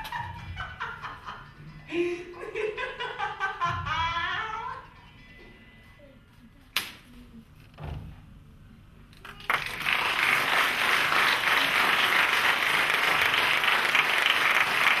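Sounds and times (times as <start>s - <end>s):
audience applauding: 9.3s - 15.0s.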